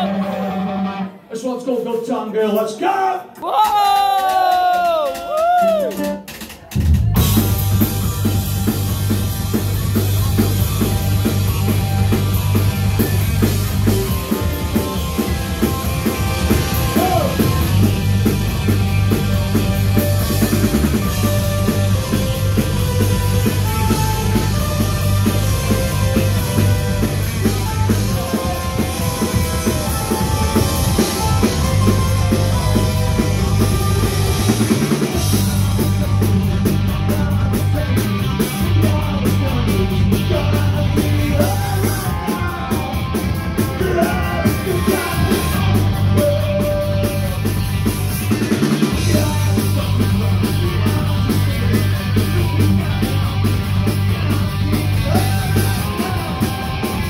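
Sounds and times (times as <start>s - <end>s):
punk rock band playing: 0.0s - 57.0s
male singer's vocals: 36.8s - 47.6s, 48.8s - 53.4s, 55.0s - 57.0s.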